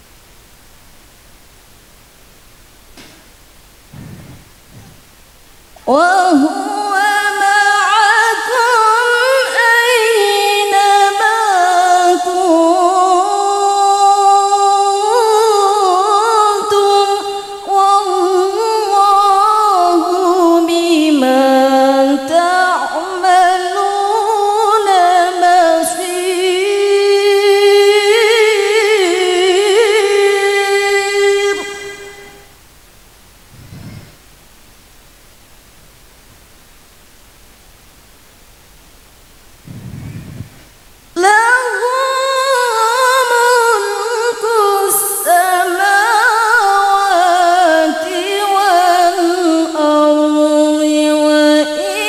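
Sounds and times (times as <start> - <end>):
woman chanting into microphone: 5.8 - 32.4.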